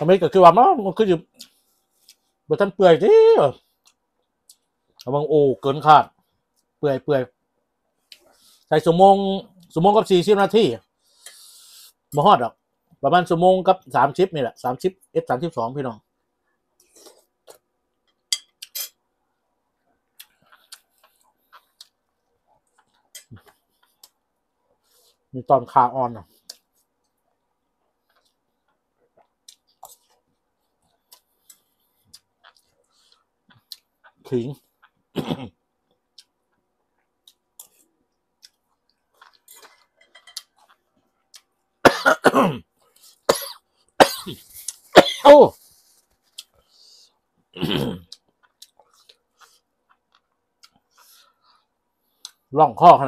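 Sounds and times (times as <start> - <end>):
person chewing: 20.0 - 24.3, 26.4 - 34.2, 35.9 - 41.6, 46.2 - 47.1, 47.8 - 52.5
mouth smacking and chewing: 20.1 - 24.2, 30.8 - 34.2, 48.0 - 51.2
loud cough: 35.2 - 35.5, 41.9 - 42.6, 43.3 - 44.4, 45.0 - 45.4, 47.6 - 48.0.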